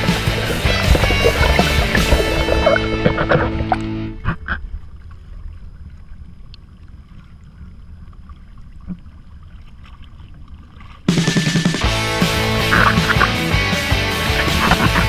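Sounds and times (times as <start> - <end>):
loud pitched sound: 0.0 - 4.4
low wind rumble: 0.0 - 9.4
faint splashes: 0.0 - 13.4
water sloshing: 0.0 - 15.0.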